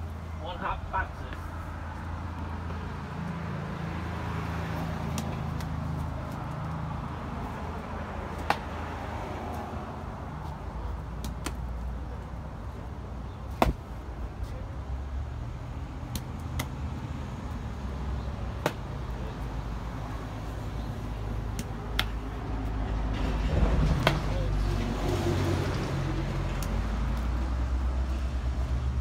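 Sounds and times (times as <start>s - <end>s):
low traffic rumble: 0.0s - 29.0s
ball bouncing on paving stones: 4.7s - 6.8s, 8.2s - 9.7s, 10.4s - 12.0s, 13.4s - 14.5s, 16.0s - 17.1s, 17.8s - 19.6s, 20.4s - 22.8s, 23.8s - 24.3s, 26.3s - 27.6s
ball smacking into a glove: 13.5s - 13.8s.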